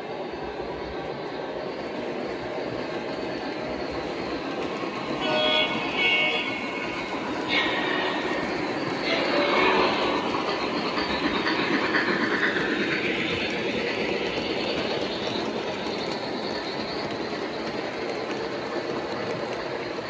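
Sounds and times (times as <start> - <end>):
model train wheels rattling on rails: 0.4 - 20.0.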